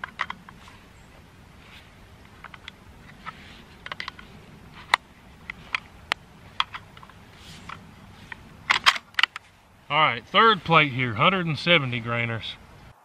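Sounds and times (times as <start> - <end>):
rifle bolt clicks: 8.7 - 9.4.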